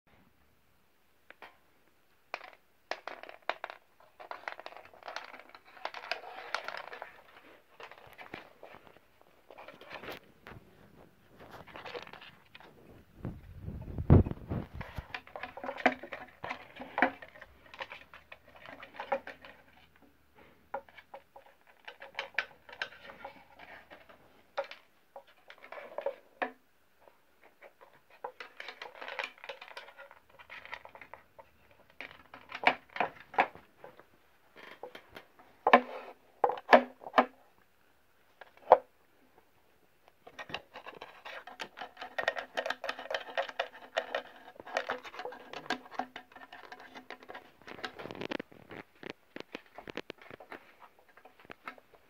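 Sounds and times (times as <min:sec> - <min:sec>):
cats scratching wooden box: 0:02.3 - 0:10.2, 0:13.7 - 0:20.1, 0:40.2 - 0:52.0.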